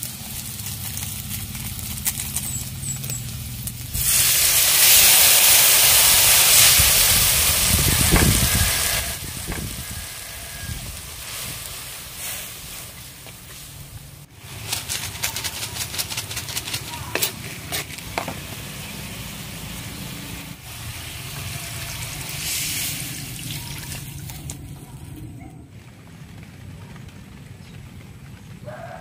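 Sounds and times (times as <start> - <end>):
water pouring into a wok: 4.0 - 9.8, 20.6 - 24.5.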